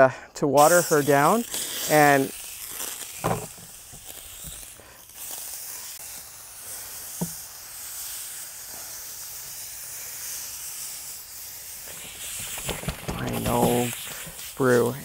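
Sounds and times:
foam cannon spraying water: 0:00.5 - 0:15.0.

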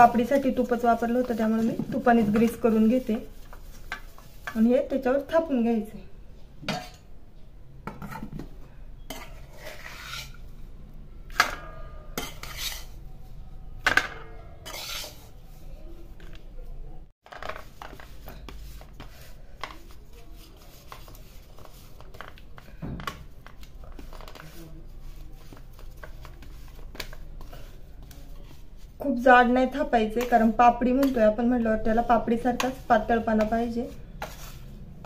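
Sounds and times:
metal spatula scraping pan: 0:00.0 - 0:05.2, 0:09.0 - 0:10.5, 0:11.3 - 0:13.1, 0:13.9 - 0:15.6, 0:23.9 - 0:35.0.

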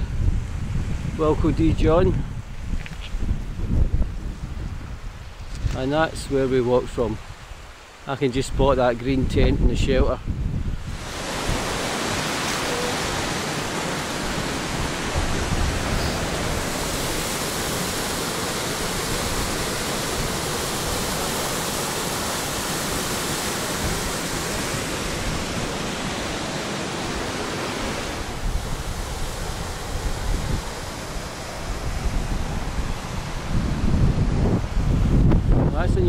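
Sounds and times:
flowing water rushing: 0:10.8 - 0:35.7.

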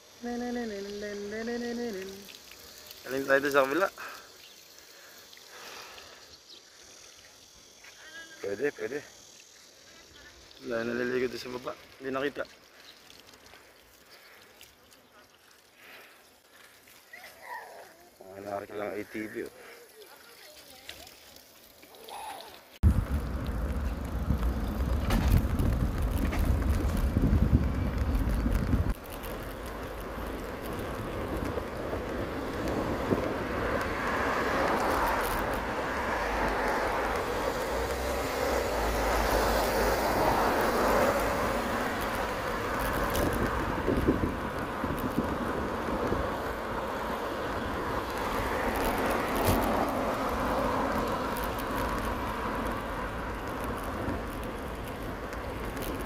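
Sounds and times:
road noise: 0:00.0 - 0:56.0
wind rushing: 0:22.8 - 0:29.0, 0:30.0 - 0:51.3
wind rumbling on microphone: 0:22.8 - 0:56.0.

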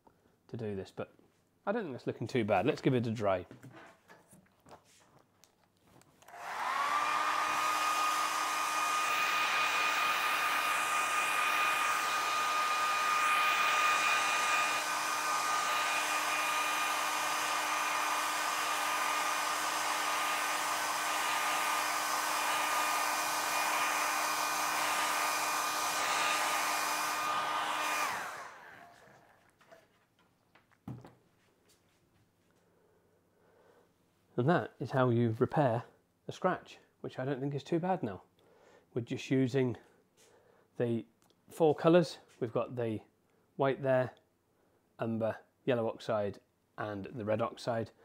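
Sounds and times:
hair dryer blowing: 0:06.2 - 0:29.3.

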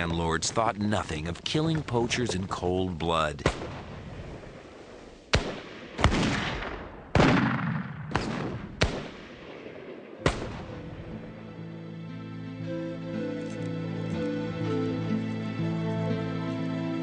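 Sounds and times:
gunshots with echo: 0:03.4 - 0:11.3
soft music: 0:10.1 - 0:17.0.

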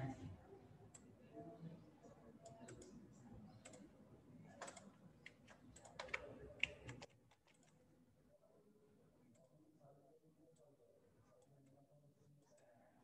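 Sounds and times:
computer mouse clicking: 0:02.4 - 0:02.9, 0:04.6 - 0:07.8.

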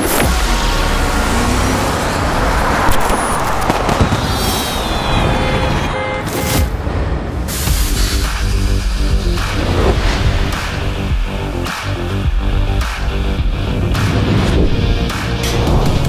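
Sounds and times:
city street traffic: 0:00.0 - 0:16.0
fireworks banging and crackling: 0:02.8 - 0:05.1
low rumble: 0:06.7 - 0:16.0.

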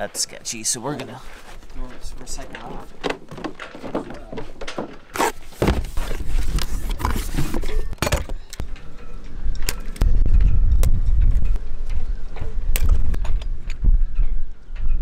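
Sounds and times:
wind rumbling on microphone: 0:05.7 - 0:15.0.

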